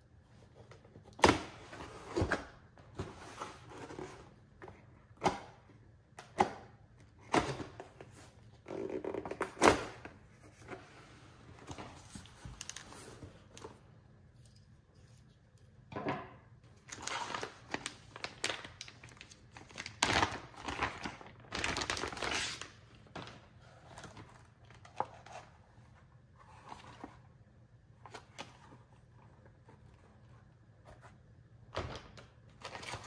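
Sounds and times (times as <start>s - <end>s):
plastic bag crinkling: 16.8s - 23.3s.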